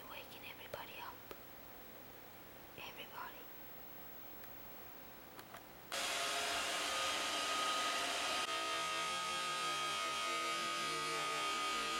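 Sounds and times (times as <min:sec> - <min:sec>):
electric motor whirring with high whine: 0:05.9 - 0:11.9.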